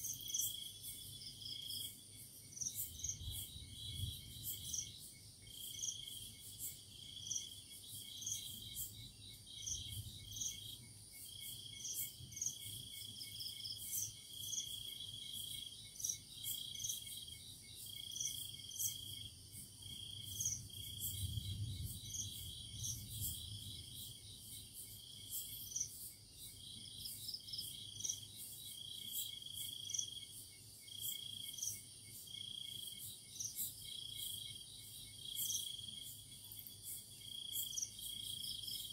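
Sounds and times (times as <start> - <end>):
crickets trilling: 0.0 - 38.9
high-pitched insect chirp: 0.0 - 38.9.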